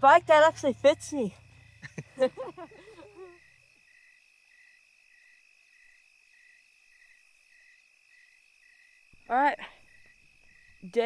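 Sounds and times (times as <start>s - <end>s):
cricket chirping: 0.0s - 11.0s
high insect drone: 0.0s - 11.0s.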